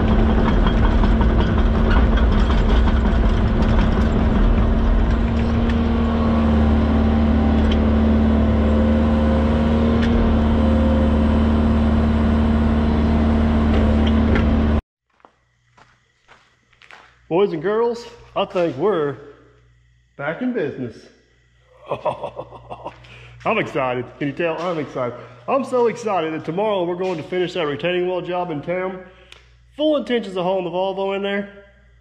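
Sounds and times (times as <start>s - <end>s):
excavator engine and hydraulics: 0.0s - 14.8s.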